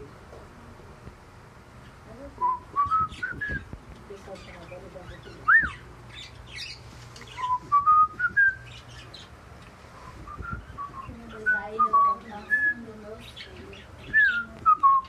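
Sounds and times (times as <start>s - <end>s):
cockatiels whistling: 2.4s - 3.7s, 5.4s - 5.8s, 6.6s - 9.1s, 10.0s - 12.8s, 14.0s - 15.0s
high bird chirps: 4.4s - 9.4s, 10.0s - 15.0s.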